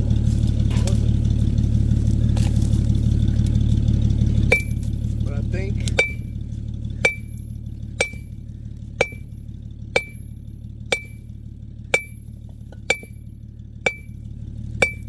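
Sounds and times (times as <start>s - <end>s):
sledgehammer striking rock: 4.5s - 4.9s, 5.9s - 6.3s, 7.0s - 7.4s, 8.0s - 8.3s, 9.0s - 9.4s, 10.0s - 10.3s, 10.9s - 11.3s, 11.9s - 13.2s, 13.9s - 14.2s.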